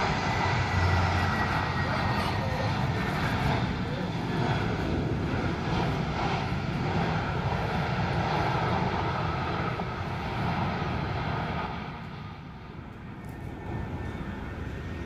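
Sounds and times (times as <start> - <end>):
jet engines at takeoff thrust: 0.0 - 15.0.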